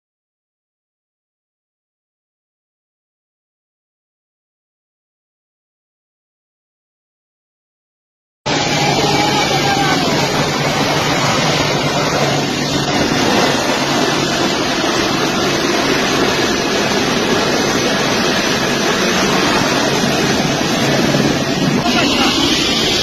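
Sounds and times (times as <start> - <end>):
jet engines running: 8.5 - 23.0
low hum: 8.5 - 23.0.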